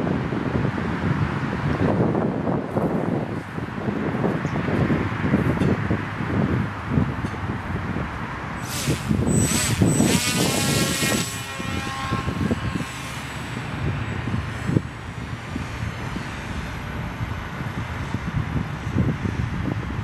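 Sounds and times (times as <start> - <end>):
wind rumbling on microphone: 0.0 - 20.0
model plane motor whining: 8.6 - 17.2.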